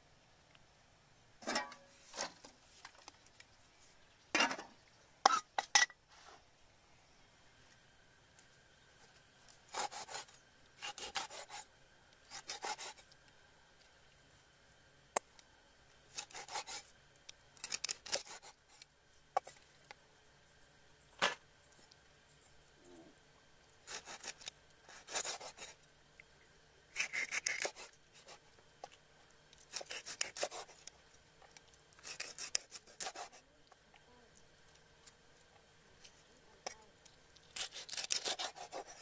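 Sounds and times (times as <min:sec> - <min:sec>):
knife sawing through fish scales: 0:09.7 - 0:11.7, 0:12.3 - 0:13.1, 0:16.1 - 0:16.9, 0:17.6 - 0:18.7, 0:23.8 - 0:25.8, 0:26.9 - 0:28.4, 0:29.7 - 0:30.9, 0:32.0 - 0:33.5, 0:37.6 - 0:39.0.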